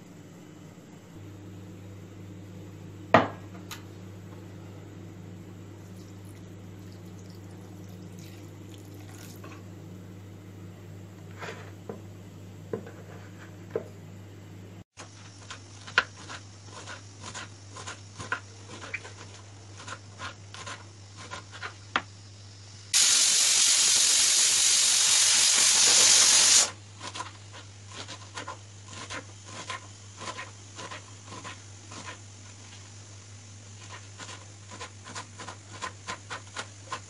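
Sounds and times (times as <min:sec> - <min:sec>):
loud steady hiss: 0:21.8 - 0:27.0.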